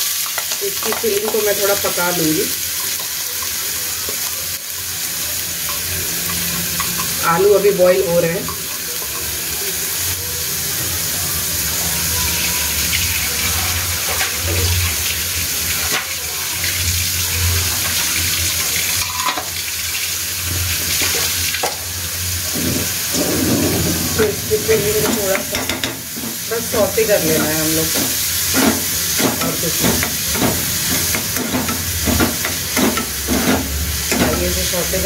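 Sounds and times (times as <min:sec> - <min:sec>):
spatula stirring in a pan: 0:00.0 - 0:10.9, 0:25.0 - 0:34.6
vegetables sizzling in hot oil: 0:00.0 - 0:35.0.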